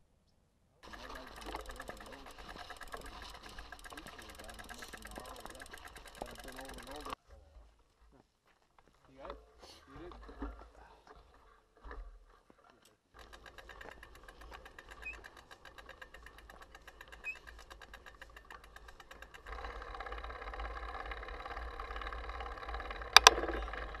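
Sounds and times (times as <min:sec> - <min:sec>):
mountain bike ticking and rattling: 0:00.8 - 0:07.2, 0:13.1 - 0:24.0.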